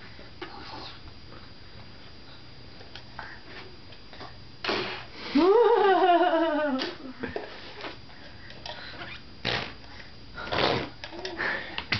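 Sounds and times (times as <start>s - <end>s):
baby blowing a raspberry: 4.6s - 5.1s, 9.4s - 11.2s.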